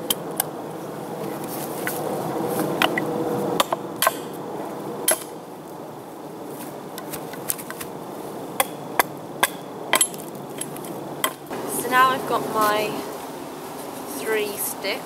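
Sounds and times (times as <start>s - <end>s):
hatchet chopping wooden stick: 3.6s - 4.3s, 5.1s - 5.3s, 8.6s - 11.5s.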